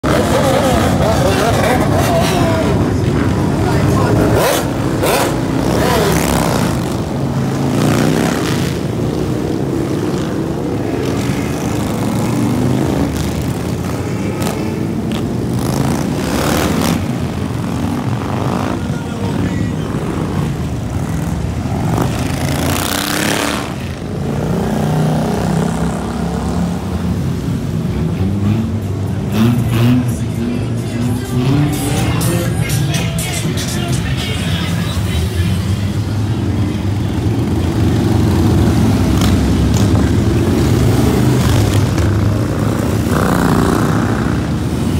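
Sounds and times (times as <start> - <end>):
motorcycles passing and revving: 0.0 - 44.9.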